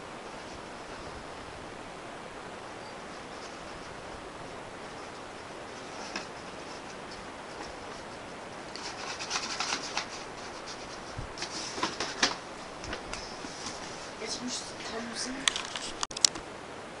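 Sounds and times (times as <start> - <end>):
steady hiss: 0.0 - 17.0
cat rubbing at object: 2.9 - 4.0, 4.8 - 12.4.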